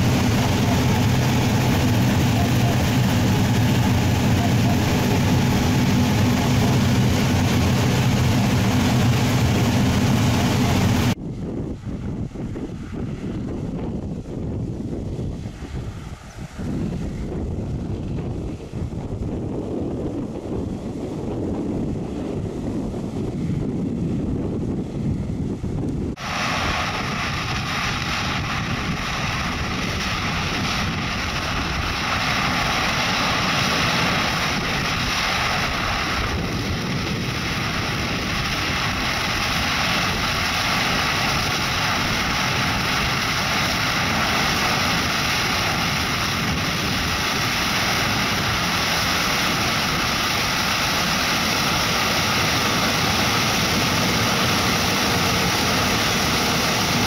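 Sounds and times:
combine harvester running: 0.0 - 11.2, 26.2 - 57.0.

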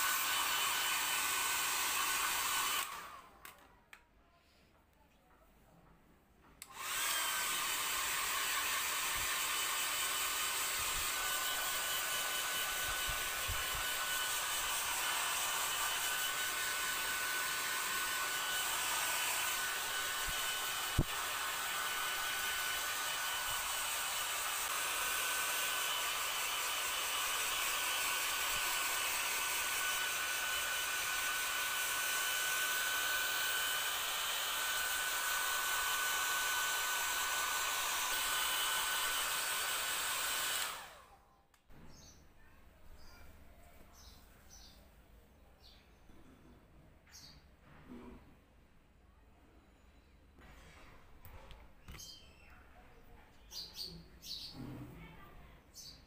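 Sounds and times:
hair dryer blowing: 0.0 - 3.6, 6.6 - 41.2.

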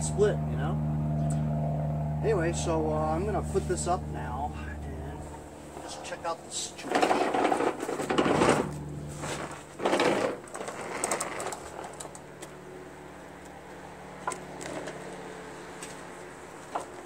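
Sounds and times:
metal mower deck scraping ground: 5.6 - 12.6, 14.2 - 15.2.

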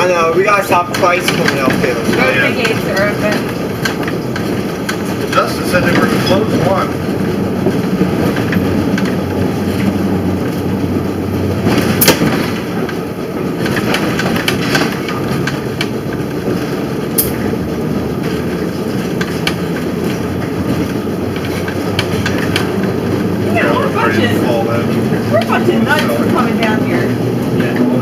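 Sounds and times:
streetcar rumbling on track: 0.0 - 28.0
track clicks and knocks: 0.7 - 28.0.

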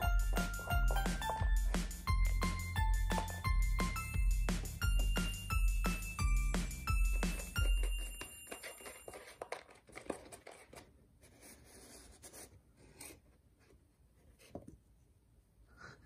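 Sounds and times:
cardboard rustling: 7.3 - 10.9.

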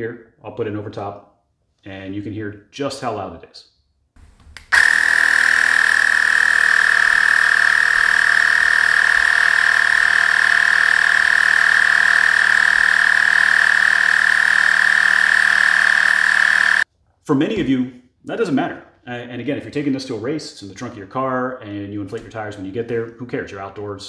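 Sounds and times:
tire inflator compressor whine: 4.7 - 16.8.

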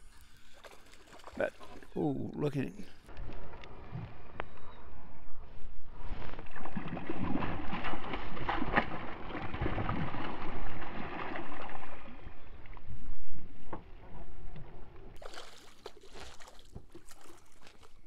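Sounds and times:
fish splashing in water: 6.3 - 12.4, 15.2 - 18.0.

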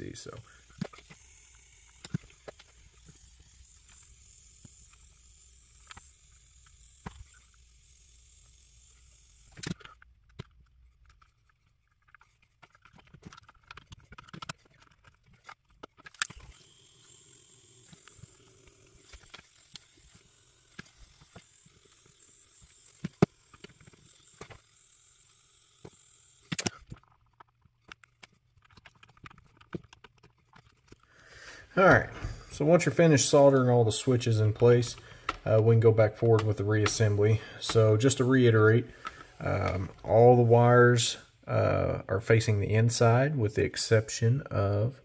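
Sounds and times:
small tools clicking and tapping: 0.3 - 7.8, 8.9 - 31.3.

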